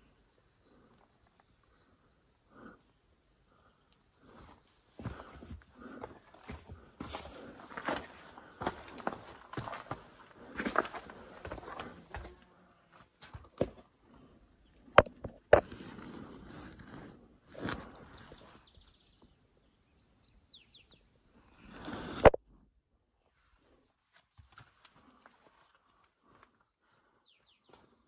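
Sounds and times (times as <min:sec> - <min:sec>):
faint bird chirps: 0:00.0 - 0:05.0, 0:17.7 - 0:21.6
footsteps on rock and gravel: 0:04.2 - 0:13.9.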